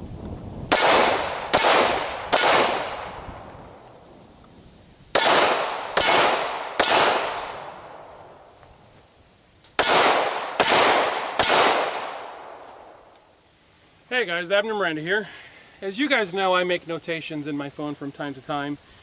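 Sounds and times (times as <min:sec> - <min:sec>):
handgun shots hitting steel targets: 0:00.7 - 0:03.2, 0:05.2 - 0:07.6.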